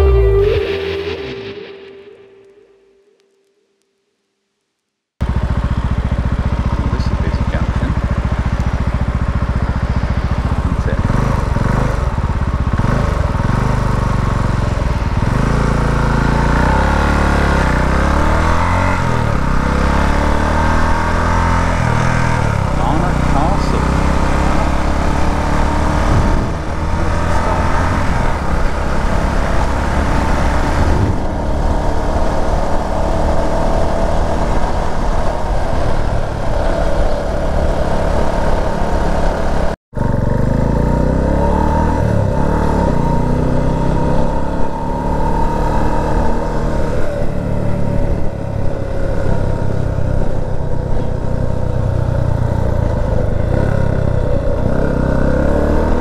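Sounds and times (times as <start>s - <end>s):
motorcycle engine running: 5.2s - 56.0s
wind rush: 25.8s - 39.8s.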